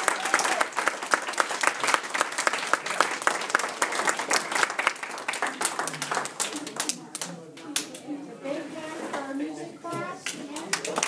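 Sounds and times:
audience applauding: 0:00.0 - 0:07.3, 0:10.5 - 0:11.0.

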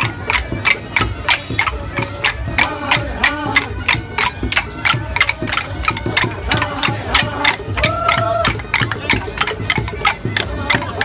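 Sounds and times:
crowd voices: 0:00.0 - 0:11.0
wooden sticks clacking: 0:02.6 - 0:11.0.

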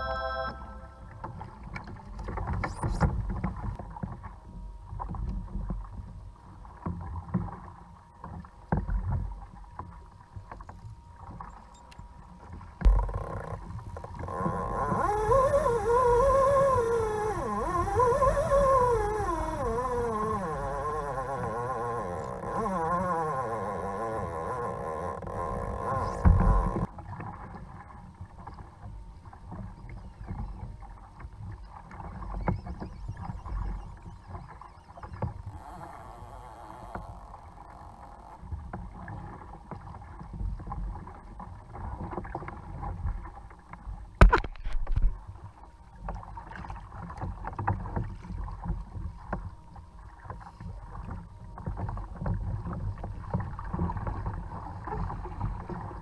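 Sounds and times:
wavering howl-like tone: 0:00.0 - 0:01.7
water slapping kayak hull: 0:01.1 - 0:56.0.

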